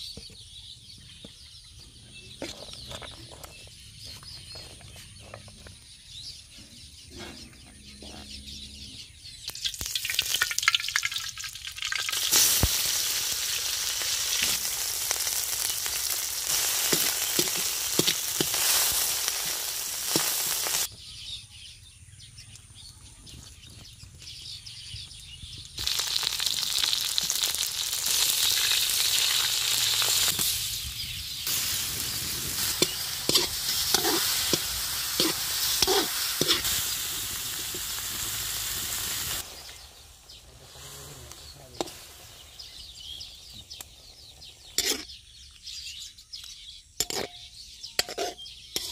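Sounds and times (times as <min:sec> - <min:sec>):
food sizzling in hot oil: 0:09.4 - 0:20.9, 0:25.8 - 0:45.2
spatula scraping a pan: 0:32.6 - 0:36.8, 0:44.7 - 0:45.1, 0:47.0 - 0:47.4, 0:48.0 - 0:48.9.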